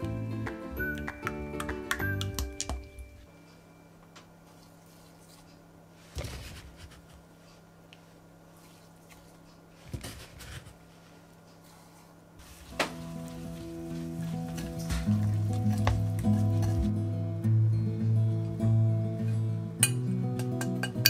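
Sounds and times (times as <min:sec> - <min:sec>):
faint steady hum: 0:00.0 - 0:16.4.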